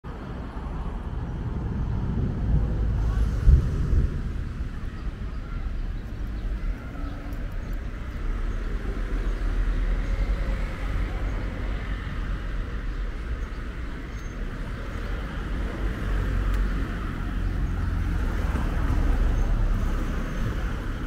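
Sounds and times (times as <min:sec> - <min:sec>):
road traffic rumble: 0:00.0 - 0:21.0
wind buffeting microphone: 0:00.1 - 0:21.0.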